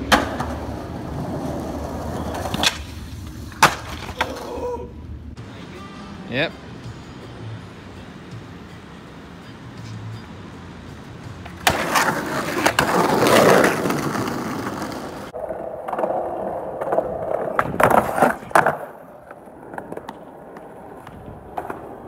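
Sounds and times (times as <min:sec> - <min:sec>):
skateboard landing on concrete: 0:00.0 - 0:04.6, 0:11.4 - 0:22.0
skateboard wheels rolling: 0:00.0 - 0:05.5, 0:08.1 - 0:22.0.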